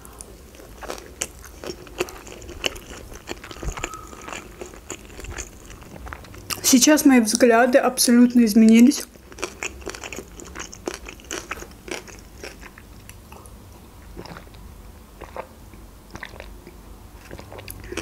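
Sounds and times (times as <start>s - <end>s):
wet crunchy chewing: 0.5s - 6.7s, 9.0s - 13.2s, 14.2s - 14.6s, 17.2s - 18.0s.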